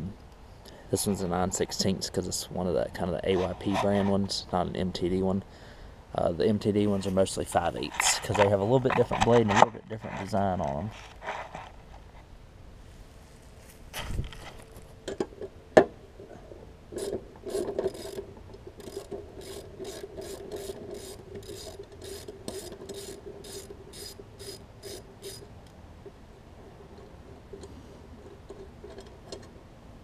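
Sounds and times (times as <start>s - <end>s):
socket ratchet clicking: 18.8s - 25.4s.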